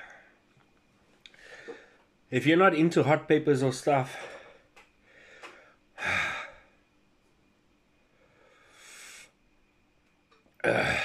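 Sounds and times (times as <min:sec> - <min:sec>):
man breathing out hard: 0:04.1 - 0:06.8.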